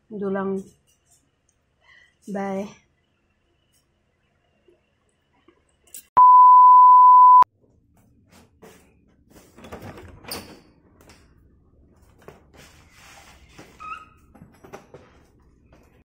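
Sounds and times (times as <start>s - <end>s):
steady electronic beep: 6.2s - 7.5s.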